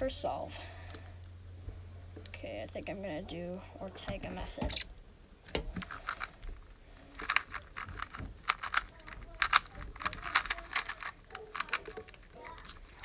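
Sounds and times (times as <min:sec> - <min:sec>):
puzzle cube plastic clicks: 0:05.8 - 0:06.4, 0:07.0 - 0:13.0.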